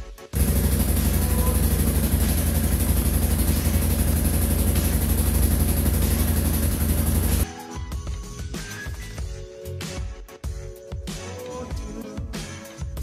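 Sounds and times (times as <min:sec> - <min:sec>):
atv engine idling: 0:00.4 - 0:07.4.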